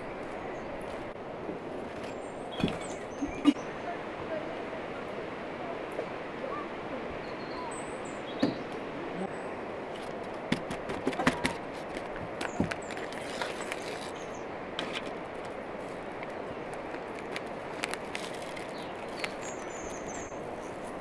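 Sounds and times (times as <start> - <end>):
steady outdoor hiss: 0.0 - 21.0
bird chirping: 2.0 - 3.8, 7.2 - 8.7, 18.4 - 20.9
plastic sachet crinkling and tearing: 12.8 - 15.5, 16.7 - 20.2.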